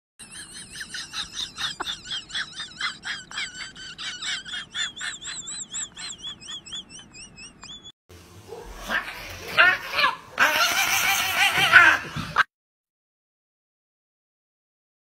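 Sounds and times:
small bird chirping: 5.2 - 8.0.

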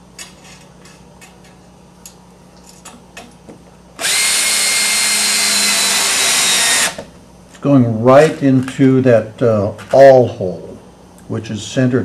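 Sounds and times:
cordless drill driving screw: 4.0 - 7.0.

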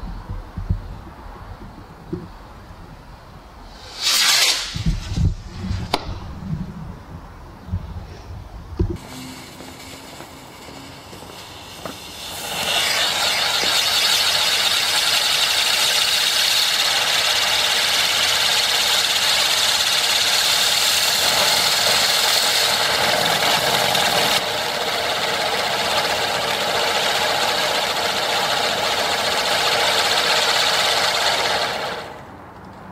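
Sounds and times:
firework spraying sparks hissing: 3.6 - 6.6, 9.0 - 32.2.

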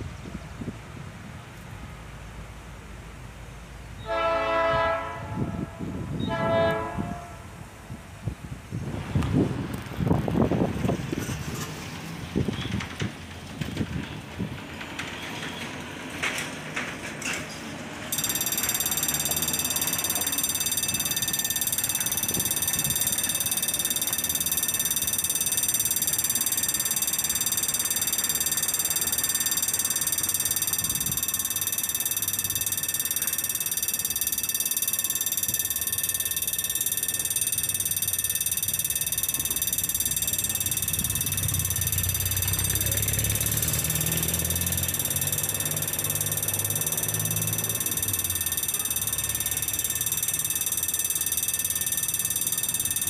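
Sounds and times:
street traffic: 0.0 - 53.0
level-crossing warning bell: 18.1 - 53.0.

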